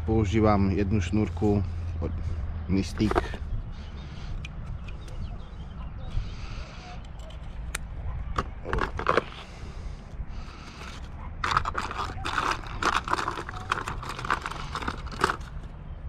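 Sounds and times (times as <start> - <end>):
hands scraping plastic tackle box: 2.9 - 3.4, 8.4 - 9.6, 10.5 - 15.7
packet rustling: 8.4 - 9.5, 10.5 - 15.7.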